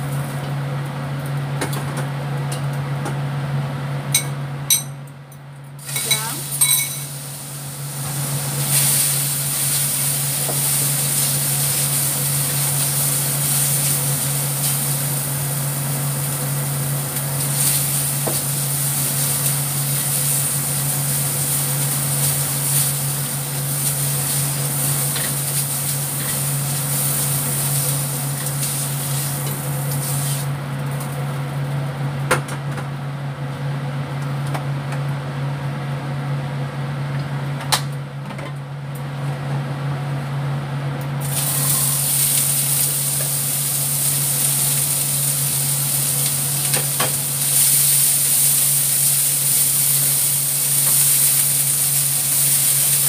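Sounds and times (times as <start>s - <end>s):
shrimp sizzling in a wok: 5.8s - 31.2s, 41.2s - 53.0s.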